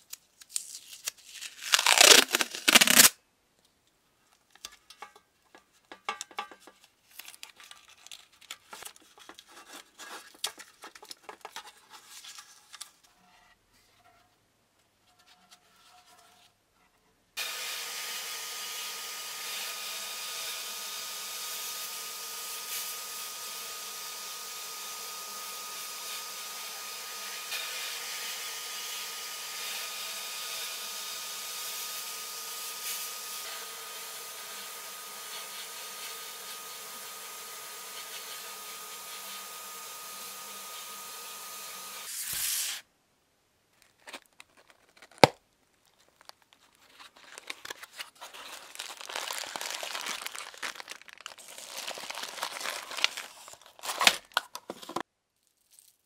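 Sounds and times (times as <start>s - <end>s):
sandblasting gun hissing: 17.4s - 42.8s.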